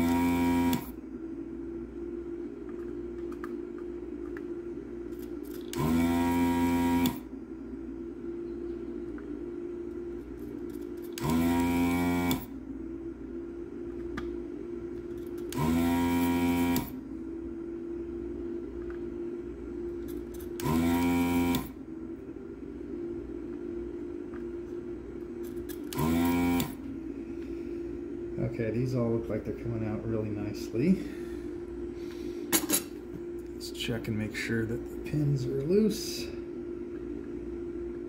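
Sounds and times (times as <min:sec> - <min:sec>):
fan humming: 0:00.0 - 0:38.0
vacuum pump whining: 0:00.0 - 0:38.0.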